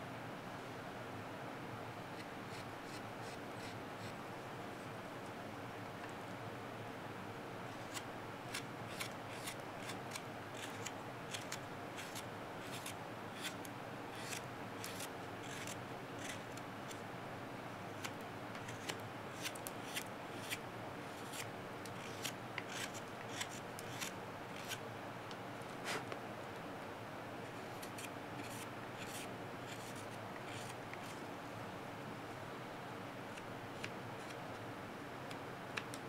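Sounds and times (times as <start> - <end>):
knife shaving cuts in wood: 7.9 - 13.6, 14.2 - 16.6, 21.2 - 24.8, 27.7 - 31.2.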